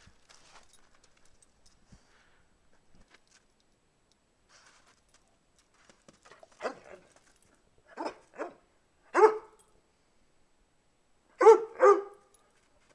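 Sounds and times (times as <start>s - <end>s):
dog barking: 6.6s - 7.0s, 7.9s - 9.6s, 11.4s - 12.3s.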